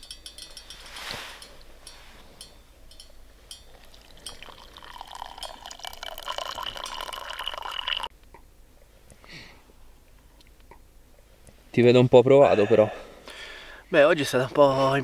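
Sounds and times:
tea pouring into a mug: 0:03.7 - 0:08.1.

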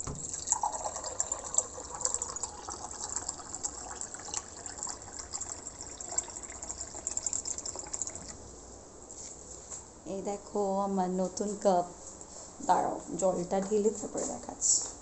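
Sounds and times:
water pouring into container: 0:00.0 - 0:08.4.

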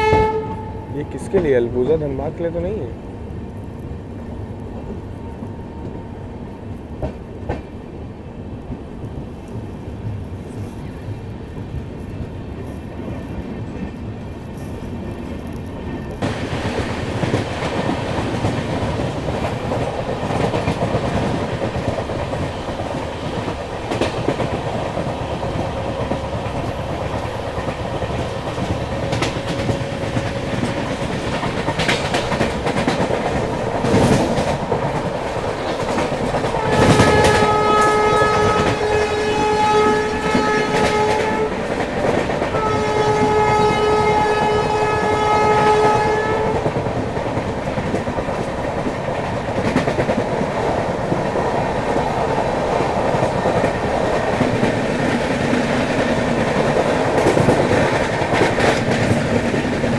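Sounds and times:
train horn: 0:00.0 - 0:01.2, 0:36.4 - 0:41.7, 0:42.5 - 0:46.8
train rumble and rail clatter: 0:00.0 - 0:59.9.

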